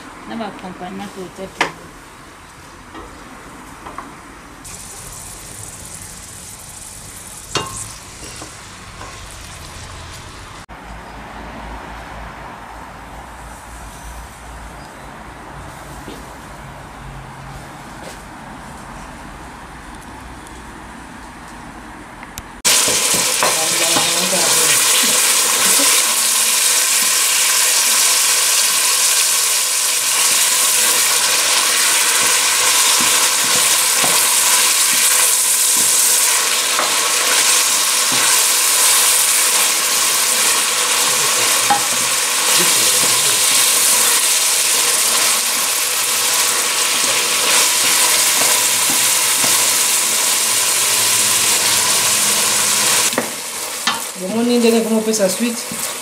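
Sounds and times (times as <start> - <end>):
food sizzling in hot oil: 4.6 - 10.6, 22.6 - 56.0.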